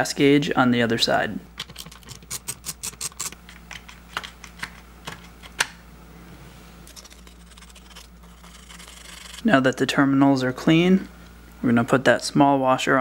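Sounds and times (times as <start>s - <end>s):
sandpaper rubbing on metal: 6.9s - 9.4s.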